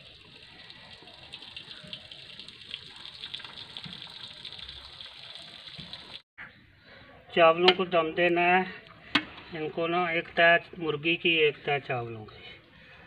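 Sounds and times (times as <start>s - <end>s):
water pouring into metal basin: 0.0s - 6.2s.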